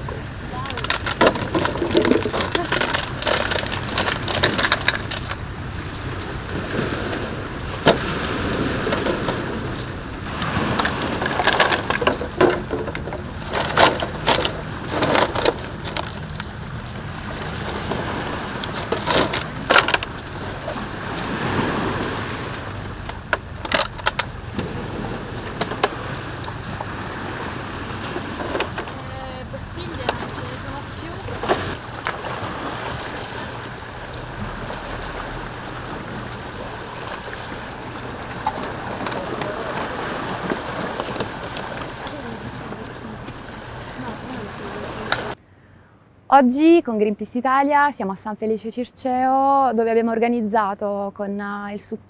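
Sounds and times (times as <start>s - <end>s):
plastic bottles crinkling: 0.6s - 5.4s.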